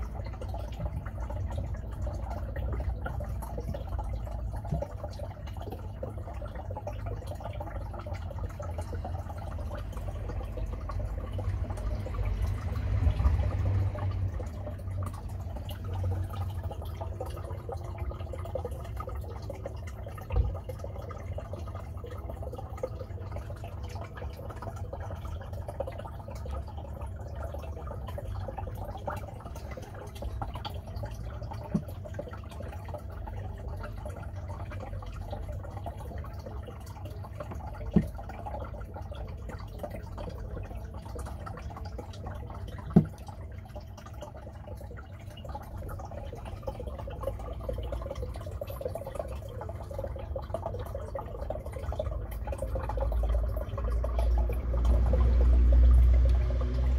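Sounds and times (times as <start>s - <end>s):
water trickling and dripping: 0.0s - 56.9s
low rumble: 52.3s - 56.9s.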